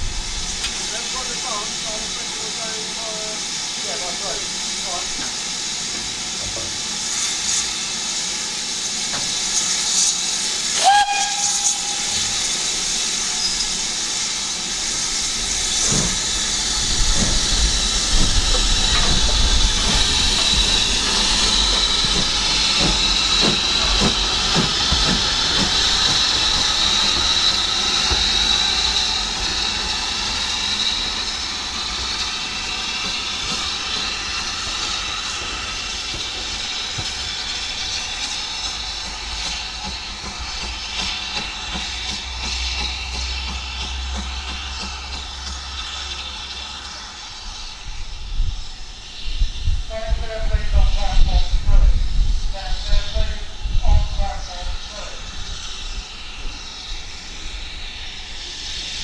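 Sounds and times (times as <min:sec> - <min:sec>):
steam hissing: 0:00.0 - 0:59.0
steam whistle toot: 0:10.7 - 0:12.6.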